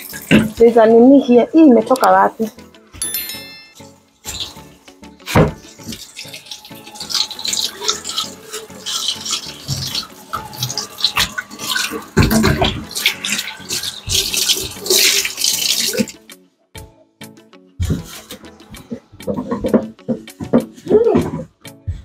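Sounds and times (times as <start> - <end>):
water splashing and running: 5.3 - 16.2.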